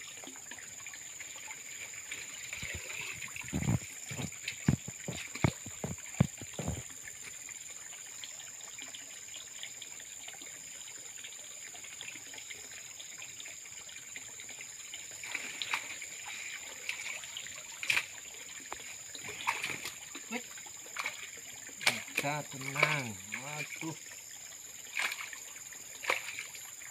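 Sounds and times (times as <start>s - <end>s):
water sloshing and trickling: 0.0s - 26.9s
light splashes: 1.4s - 7.4s, 15.1s - 24.1s, 24.8s - 26.8s.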